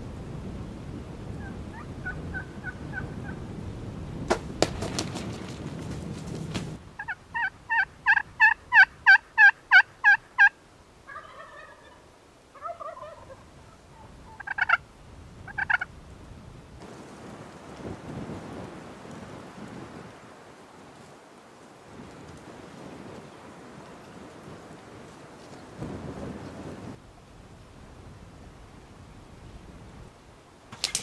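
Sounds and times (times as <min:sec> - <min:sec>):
wild turkeys gobbling: 0:01.3 - 0:03.4, 0:06.2 - 0:14.8, 0:15.5 - 0:15.9.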